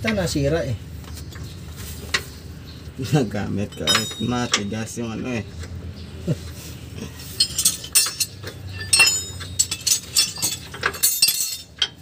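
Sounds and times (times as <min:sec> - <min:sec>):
metal hand tools clinking: 0:03.7 - 0:05.0, 0:07.1 - 0:12.0.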